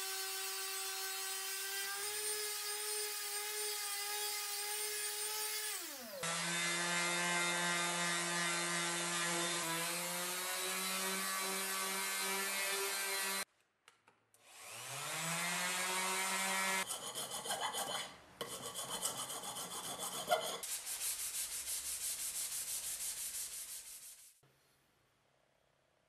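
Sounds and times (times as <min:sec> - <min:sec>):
sandpaper rubbing by hand: 0:16.8 - 0:24.4.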